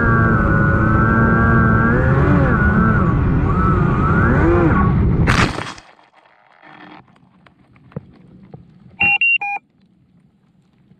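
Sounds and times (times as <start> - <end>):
electric motor and propeller whining: 0.0 - 5.2
model plane crashing: 5.2 - 7.3
faint clicks and rustles: 5.6 - 9.0, 9.6 - 10.9.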